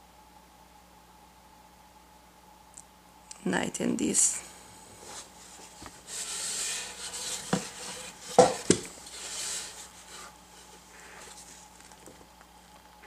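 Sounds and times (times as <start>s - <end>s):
board rubbing and scraping on mat: 5.0s - 11.6s
board knocking down: 6.3s - 9.8s.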